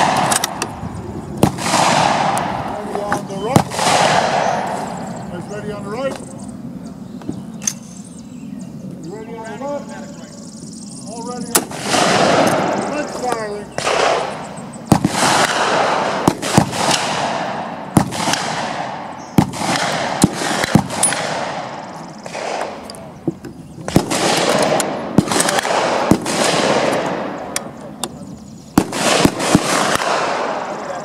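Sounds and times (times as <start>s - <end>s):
rifle gunshots echoing: 0.0s - 6.1s, 11.3s - 23.2s, 23.8s - 28.0s, 28.7s - 31.0s.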